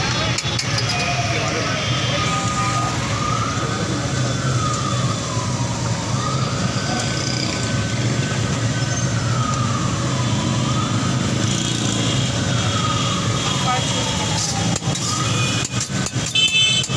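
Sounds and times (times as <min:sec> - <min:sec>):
busy street noise: 0:00.0 - 0:16.9
siren wailing: 0:00.0 - 0:16.9.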